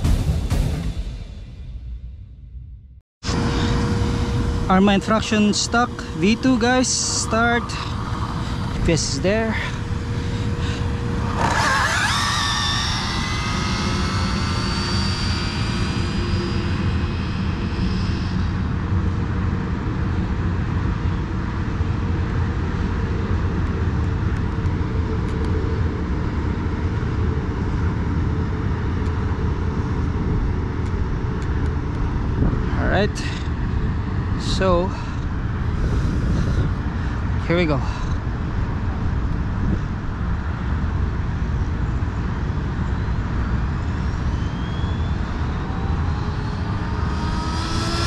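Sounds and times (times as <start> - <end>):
electric motor whining: 3.2 - 19.6, 44.0 - 48.0
wind rumble on microphone: 3.2 - 48.0.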